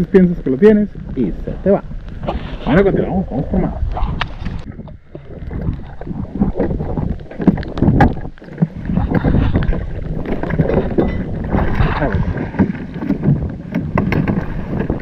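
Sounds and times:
wind buffeting microphone: 0:00.0 - 0:15.0
water slapping against hull: 0:03.9 - 0:15.0.

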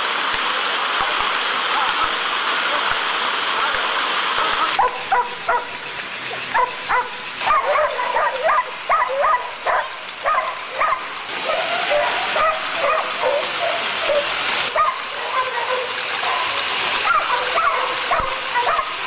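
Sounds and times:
treadmill rushing noise: 0:04.3 - 0:19.0
dogs whining and yelping: 0:04.7 - 0:19.0.

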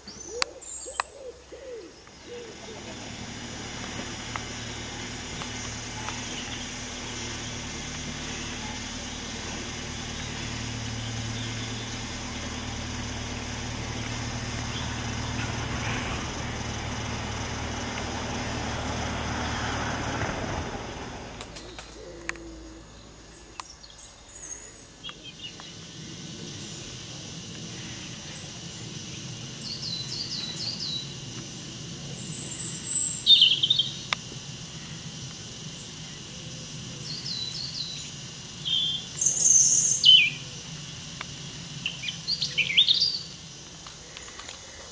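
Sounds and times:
diesel engine humming: 0:00.0 - 0:44.9
high bird chirps: 0:32.2 - 0:34.1.

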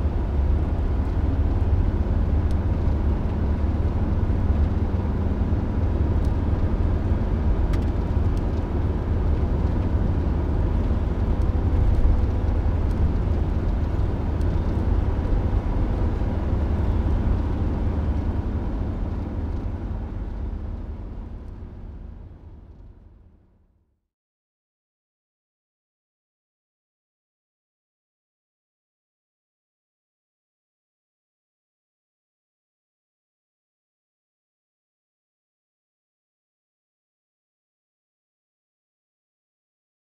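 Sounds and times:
low rumbling background noise: 0:00.0 - 0:23.8.

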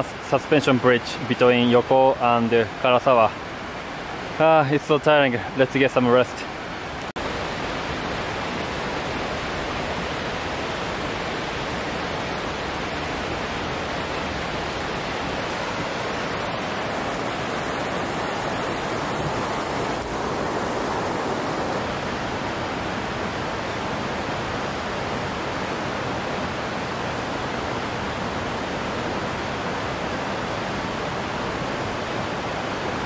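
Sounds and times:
mountain stream rushing: 0:00.0 - 0:33.0.

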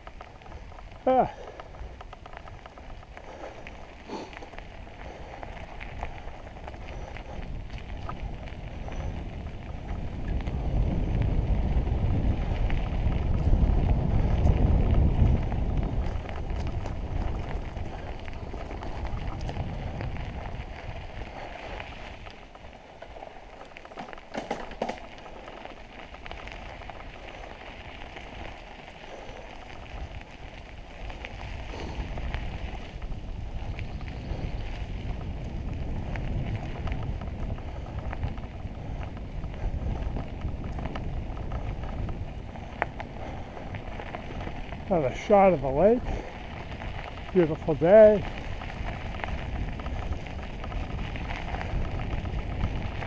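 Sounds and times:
bike tyres rustling on dirt: 0:00.0 - 0:53.0
clatter of clicks: 0:23.6 - 0:25.2.

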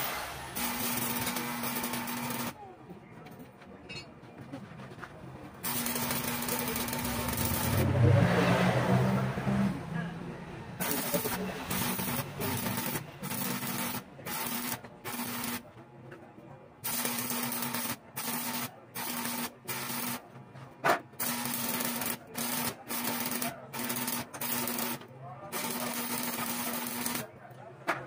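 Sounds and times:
welding arc crackling and hissing: 0:00.0 - 0:02.6, 0:05.6 - 0:07.9, 0:10.8 - 0:15.6, 0:16.8 - 0:20.2, 0:21.2 - 0:27.3.

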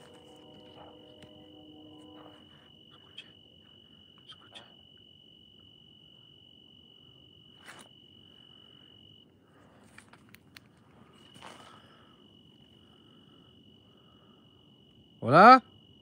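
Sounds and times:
cricket singing: 0:00.0 - 0:09.4.

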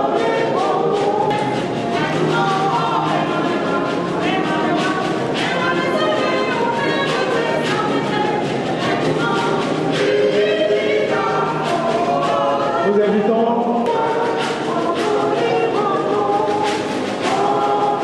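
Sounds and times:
choir singing a hymn: 0:00.0 - 0:18.0.

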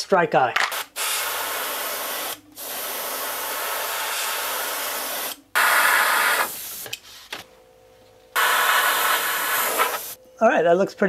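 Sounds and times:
airbrush spraying hiss: 0:00.8 - 0:06.9, 0:08.4 - 0:10.2
hair dryer blowing: 0:08.4 - 0:10.1.

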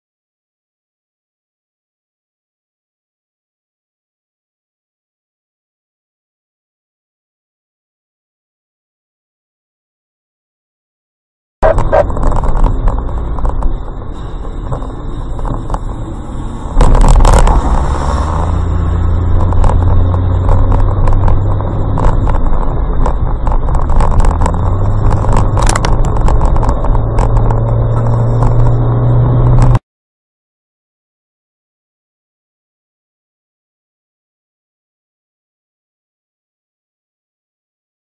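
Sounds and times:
car engine hum: 0:11.6 - 0:29.8.

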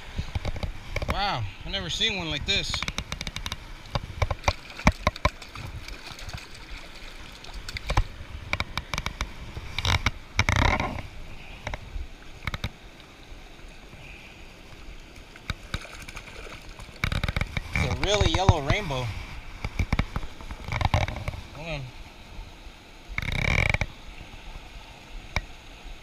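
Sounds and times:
river running over rocks: 0:00.0 - 0:26.0
sharp knocks and clicks: 0:02.7 - 0:05.5, 0:07.7 - 0:11.0, 0:19.6 - 0:21.4
fish splashing in water: 0:03.6 - 0:08.8, 0:15.1 - 0:18.0.

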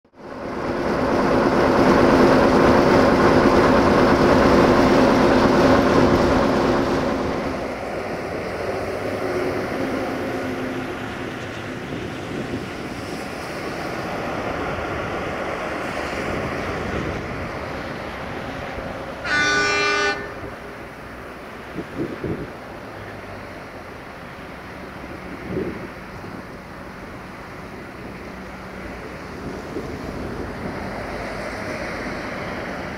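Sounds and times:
locomotive diesel engine running: 0:00.1 - 0:32.9
locomotive horn blast: 0:19.2 - 0:20.6.

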